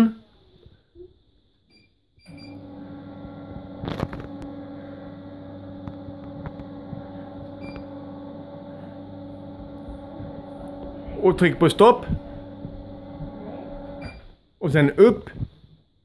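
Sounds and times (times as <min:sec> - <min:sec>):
electric motor humming: 0:02.3 - 0:14.2.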